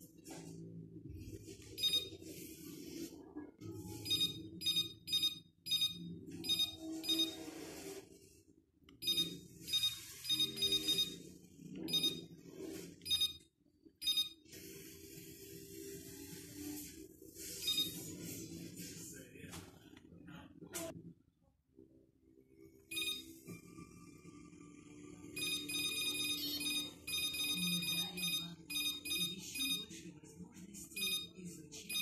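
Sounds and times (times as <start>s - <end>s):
short electronic beeps: 4.1s - 7.4s, 9.0s - 11.2s, 22.9s - 23.3s, 25.4s - 29.8s.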